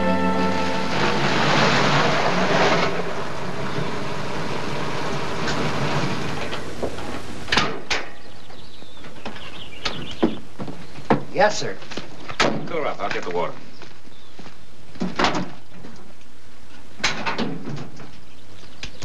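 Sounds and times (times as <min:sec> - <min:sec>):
car engine running: 0:00.6 - 0:07.5.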